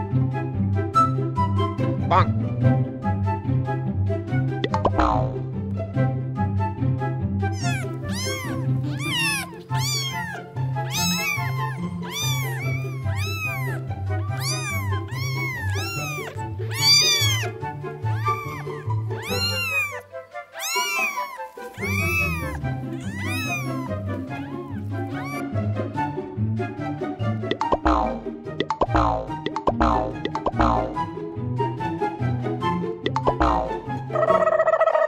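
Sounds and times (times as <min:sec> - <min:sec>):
cats meowing while fighting: 0:07.5 - 0:25.4
background music with bass line: 0:27.4 - 0:31.6.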